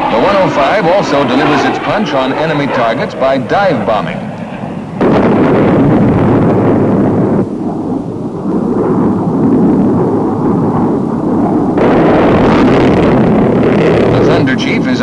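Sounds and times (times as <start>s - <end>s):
explosion rumble: 0.0s - 15.0s
loud roar: 11.8s - 14.7s.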